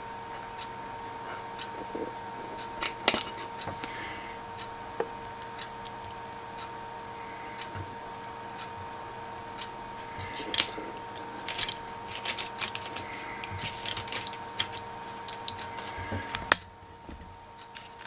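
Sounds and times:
faint electrical whine: 0:00.0 - 0:18.0
small parts clicking and tapping: 0:02.7 - 0:04.0, 0:05.0 - 0:06.2, 0:10.2 - 0:16.7, 0:17.6 - 0:18.0.

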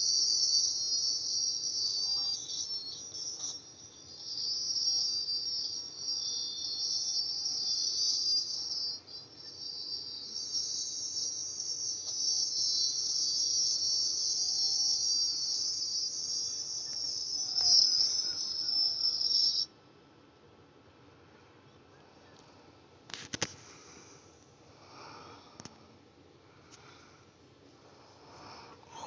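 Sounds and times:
high-pitched chirring: 0:00.0 - 0:19.7.

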